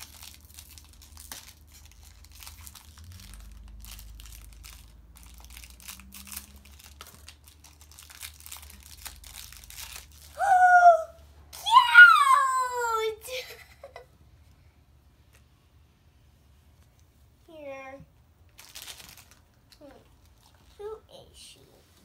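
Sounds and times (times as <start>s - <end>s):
plastic wrapping crinkling: 0.0s - 10.4s, 18.5s - 20.8s
child squealing: 10.3s - 13.3s.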